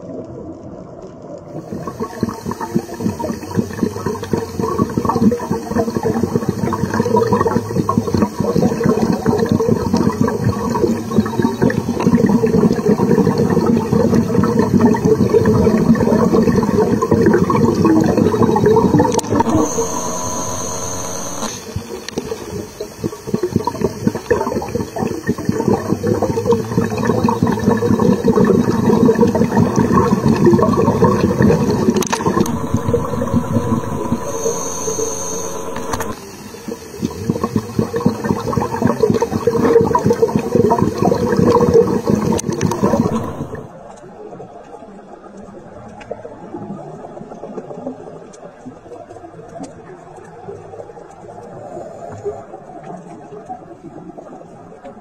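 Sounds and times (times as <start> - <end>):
underwater bubbling and rushing water: 0.0 - 55.0
steady hum with high tone: 1.7 - 43.8.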